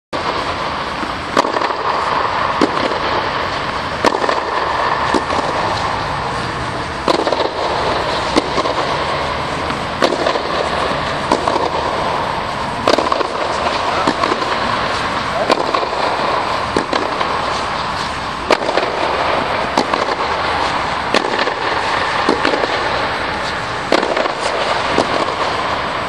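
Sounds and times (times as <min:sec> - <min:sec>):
steady background hiss: 0:00.2 - 0:26.0
tennis ball pocks: 0:01.3 - 0:02.0, 0:07.0 - 0:09.0, 0:09.6 - 0:21.6.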